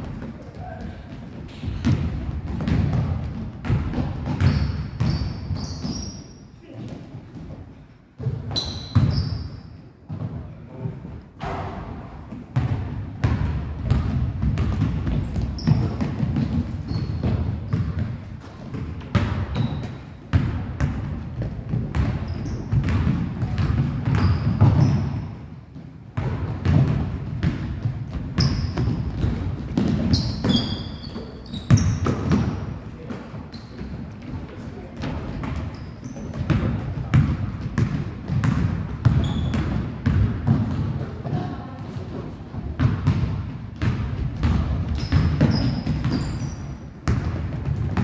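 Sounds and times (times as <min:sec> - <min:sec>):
basketballs bouncing on gym floor: 0:00.0 - 0:48.0
sneaker squeaks: 0:04.2 - 0:07.1, 0:08.2 - 0:10.2, 0:15.1 - 0:20.3, 0:21.9 - 0:25.4, 0:28.3 - 0:32.7, 0:33.4 - 0:34.2, 0:35.2 - 0:38.4, 0:39.0 - 0:40.2, 0:44.4 - 0:47.2.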